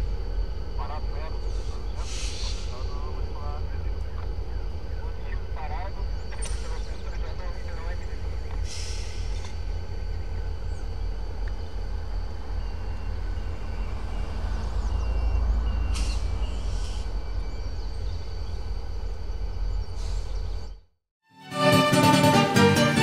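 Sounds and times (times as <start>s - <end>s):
faint steady tones: 0.0s - 20.8s
distant diesel locomotive rumble: 0.0s - 20.9s
air release hisses: 2.0s - 2.7s, 8.6s - 9.5s.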